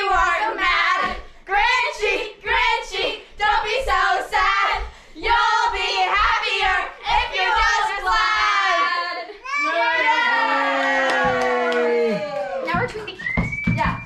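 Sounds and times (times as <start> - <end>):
girls singing together: 0.0 - 9.4.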